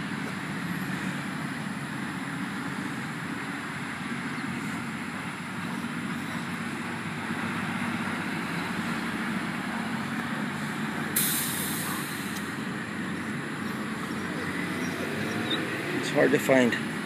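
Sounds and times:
road traffic: 0.0s - 17.0s
sharp high-pitched hiss: 11.2s - 12.5s.

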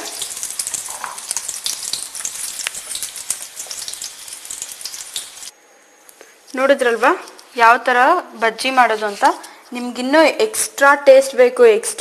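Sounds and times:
deep-frying sizzle: 0.0s - 5.5s.

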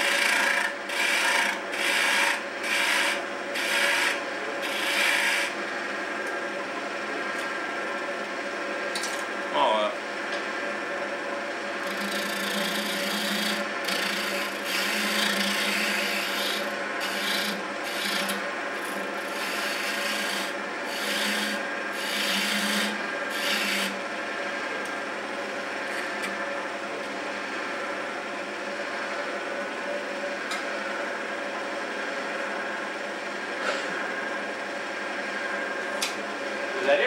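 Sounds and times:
tool cutting wood on lathe: 0.0s - 5.6s, 11.8s - 24.0s
lathe running hum: 0.0s - 37.0s.

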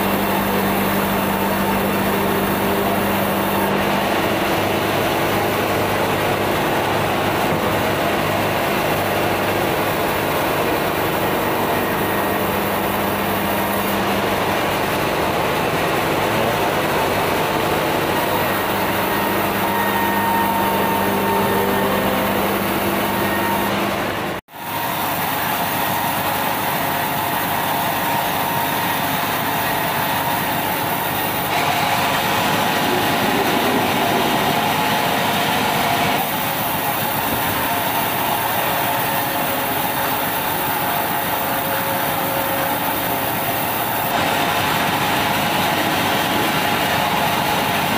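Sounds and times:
bandsaw cutting wood: 16.3s - 24.0s.

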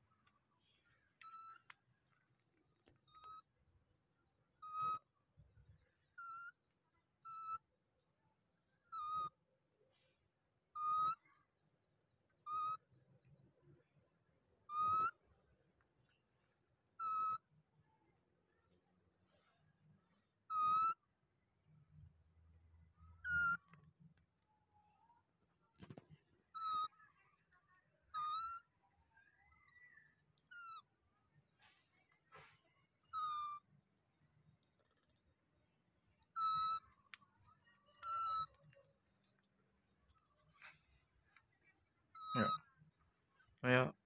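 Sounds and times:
baby monkey coo calls: 1.2s - 1.7s, 3.0s - 3.5s, 4.6s - 5.1s, 6.0s - 6.6s, 7.2s - 7.7s, 8.8s - 9.4s, 10.7s - 11.2s, 12.4s - 12.9s, 14.6s - 15.3s, 17.0s - 17.5s, 20.5s - 21.0s, 23.1s - 23.8s, 26.5s - 30.9s, 33.0s - 33.7s, 36.2s - 38.7s, 42.1s - 42.7s
soft rising monkey call: 42.1s - 42.7s.

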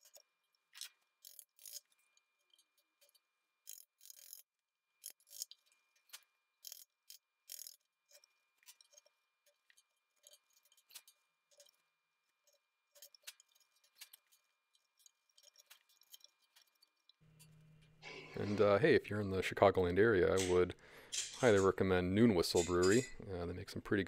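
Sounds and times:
chisel clicking and scraping wood: 0.0s - 17.2s.

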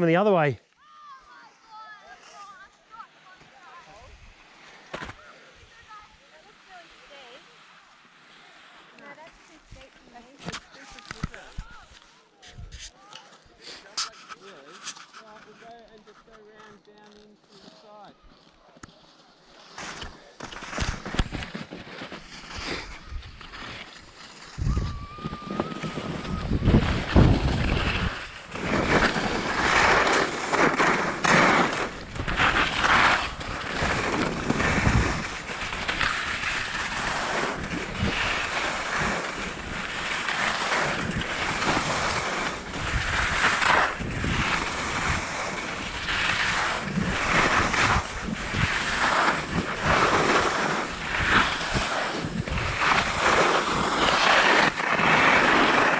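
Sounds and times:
skis scraping on snow: 0.0s - 55.9s
wind buffeting microphone: 24.5s - 40.2s, 40.8s - 55.2s.

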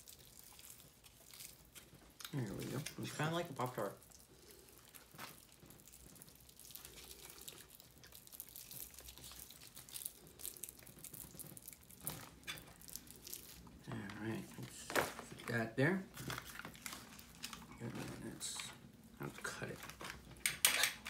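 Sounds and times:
plastic pouch crinkling: 0.0s - 21.0s.

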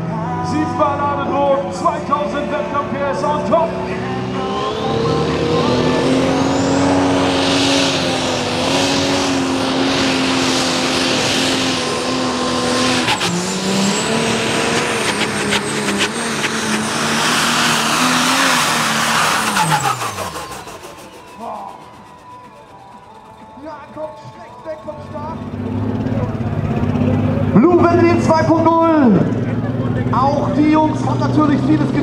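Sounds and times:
diesel engine running flat out: 0.0s - 32.0s
high turbo whistle: 4.0s - 26.4s.

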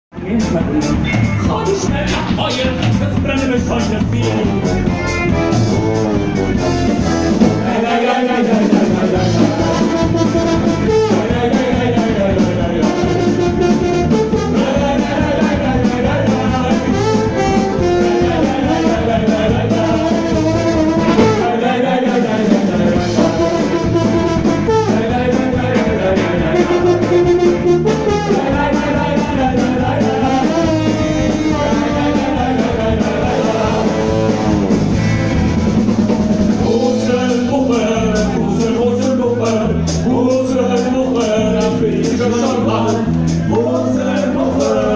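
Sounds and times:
drums: 0.0s - 44.9s
accordion: 0.2s - 44.9s
trombone: 3.8s - 38.8s
men singing together: 7.0s - 35.0s, 35.9s - 44.9s.

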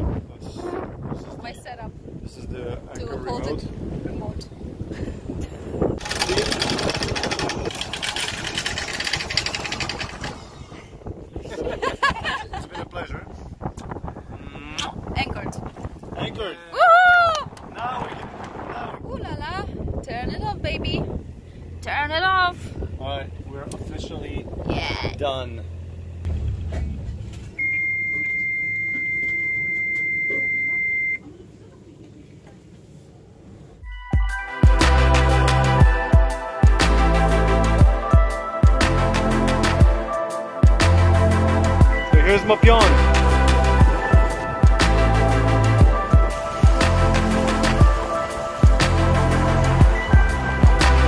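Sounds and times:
anchor chain rattling out: 6.0s - 10.7s.

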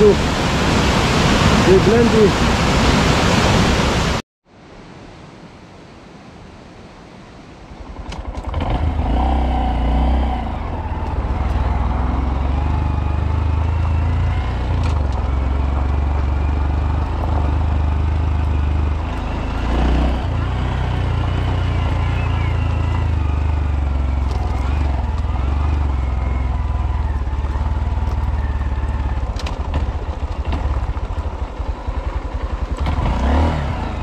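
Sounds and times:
motorcycle engine: 7.8s - 34.0s.

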